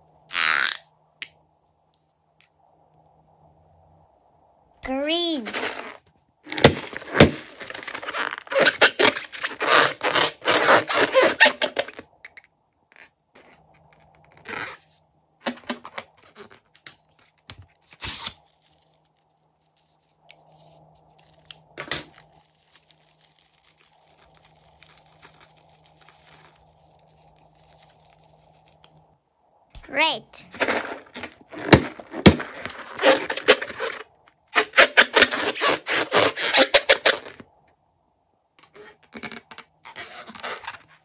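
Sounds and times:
rubber handling: 5.5 - 29.1, 30.5 - 34.0
balloon rubbing rasping: 5.6 - 12.0.

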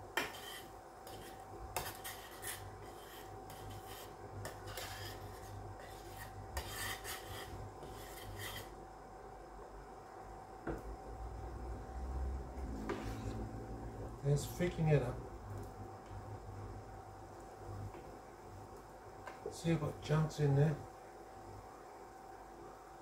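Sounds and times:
metal spoon scraping skillet: 0.2 - 8.8.

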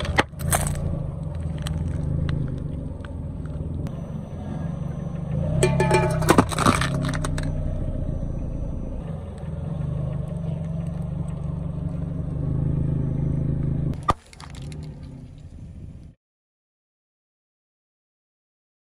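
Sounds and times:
car engine rumble: 0.0 - 16.2
tyre crushing drink can: 5.6 - 7.5.

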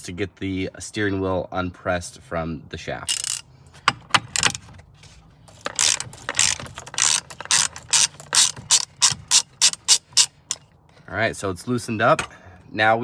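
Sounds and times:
ratchet wrench clicking: 3.1 - 3.5, 5.5 - 10.6.

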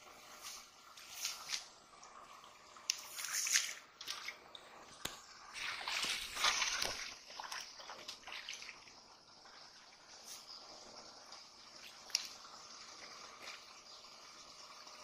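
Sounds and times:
muddy water splashing: 3.1 - 4.4, 5.5 - 8.9.

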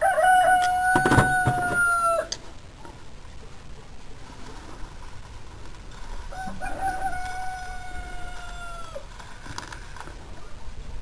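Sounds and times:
rooster crowing: 0.0 - 2.4, 6.3 - 9.1.

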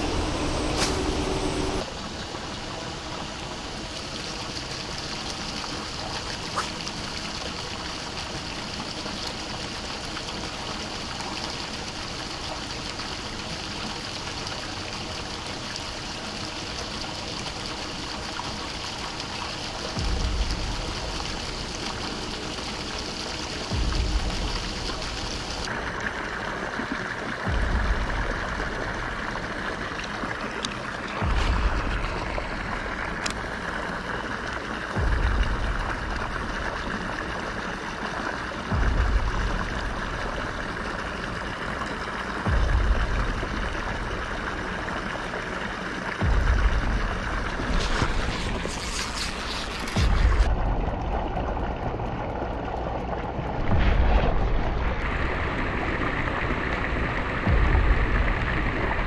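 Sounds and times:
water gushing into pond: 0.0 - 59.0
wind rumble on microphone: 19.9 - 22.5, 23.6 - 25.7, 31.1 - 34.0, 46.2 - 59.0.

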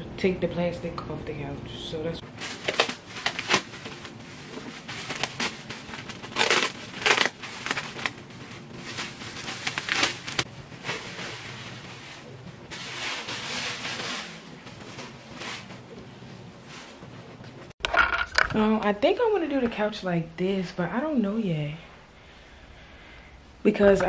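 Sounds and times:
plastic wrapping crinkling: 2.3 - 16.0.

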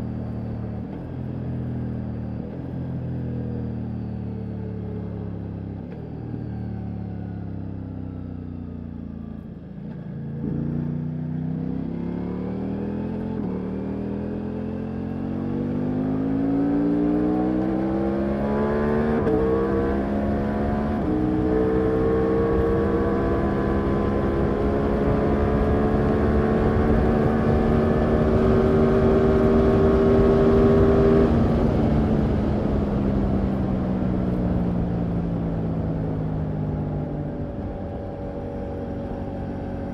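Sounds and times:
motorcycle engine accelerating: 0.0 - 39.9.

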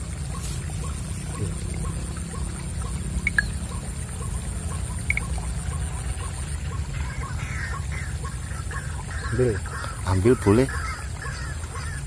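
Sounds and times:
high chirps: 3.2 - 3.8.

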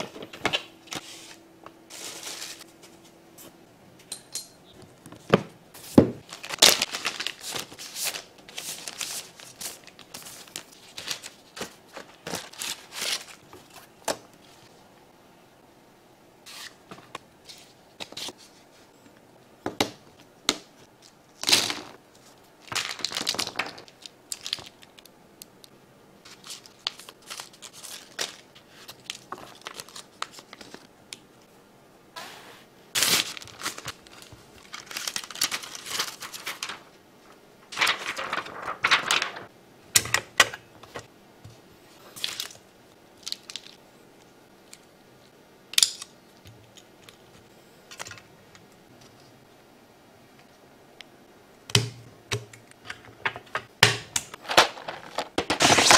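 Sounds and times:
packaging crinkling and rustling: 6.2 - 14.3, 21.4 - 25.1, 26.3 - 30.9, 33.0 - 36.9, 37.7 - 39.5, 54.4 - 55.9.

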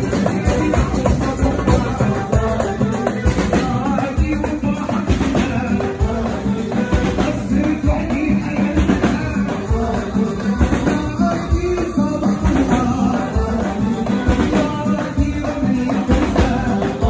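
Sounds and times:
hand drums beating: 0.0 - 17.0
men singing: 0.0 - 17.0
rattling percussion: 0.0 - 17.0.

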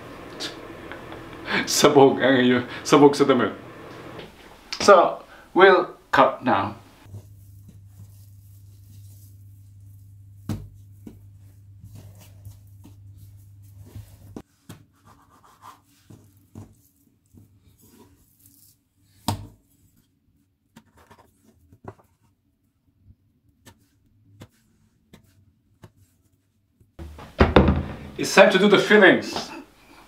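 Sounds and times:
hands rubbing dough: 7.0 - 20.1.

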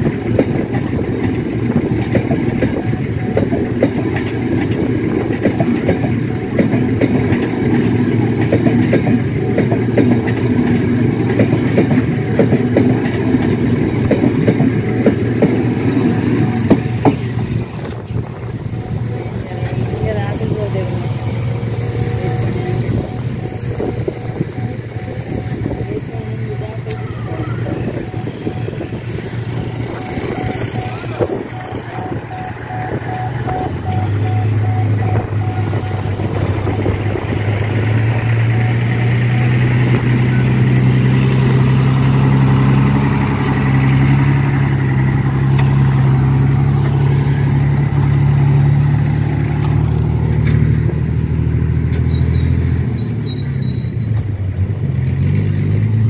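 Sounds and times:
truck diesel engine running: 0.0 - 56.0.

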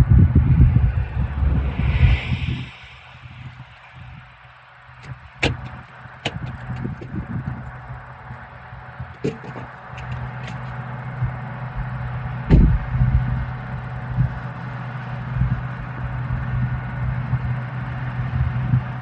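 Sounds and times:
vehicle engine running: 0.0 - 19.0
sharp clicks and knocks: 5.0 - 7.2, 9.1 - 10.8.

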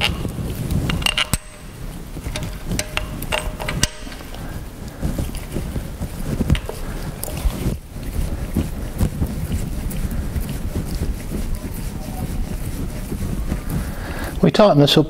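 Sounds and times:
sharp metal knocks: 0.9 - 4.3
metal clicks and taps: 2.3 - 4.3.

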